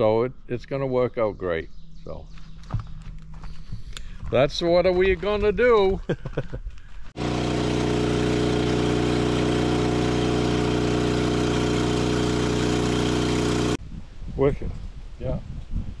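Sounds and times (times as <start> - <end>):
sawmill engine droning: 7.2 - 13.8.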